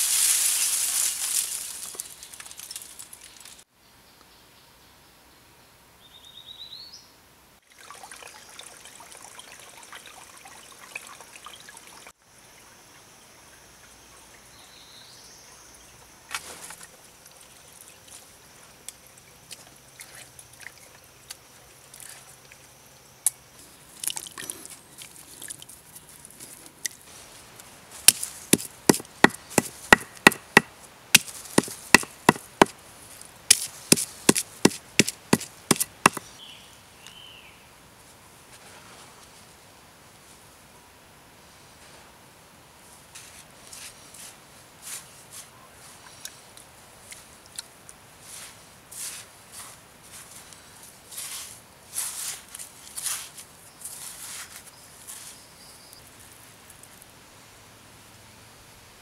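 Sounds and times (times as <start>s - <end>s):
faint trickling water: 7.6s - 22.8s, 23.9s - 27.0s
stone pounding on stone slab: 28.1s - 32.8s, 33.5s - 36.2s.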